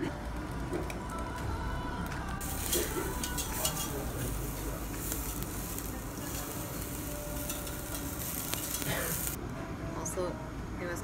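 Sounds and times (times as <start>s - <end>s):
beef sizzling on a grill: 2.4s - 9.4s.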